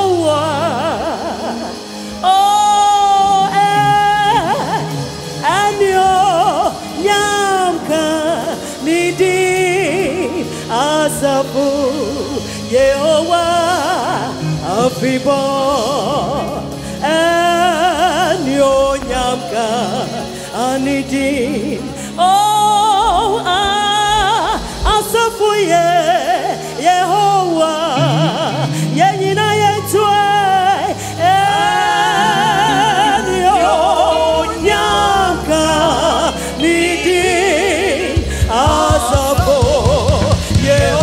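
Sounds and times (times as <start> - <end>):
women singing gospel: 0.0 - 41.0
sustained low instrument notes: 28.0 - 41.0.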